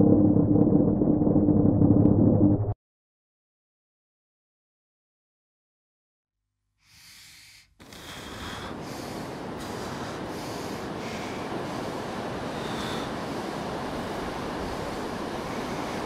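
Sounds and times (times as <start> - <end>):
sea surf rushing: 7.8 - 16.0
wind buffeting microphone: 8.7 - 16.0.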